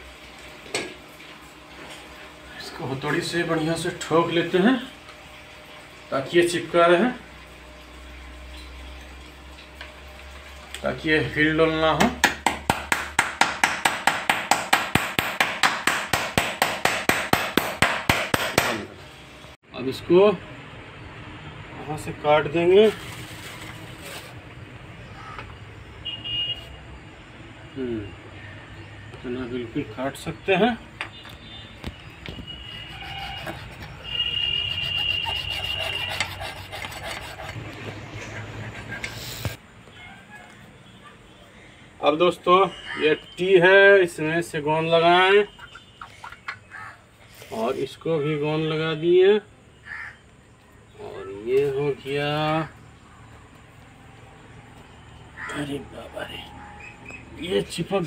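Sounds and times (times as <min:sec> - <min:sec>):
hacksaw cutting plastic pipe: 0:32.8 - 0:37.7.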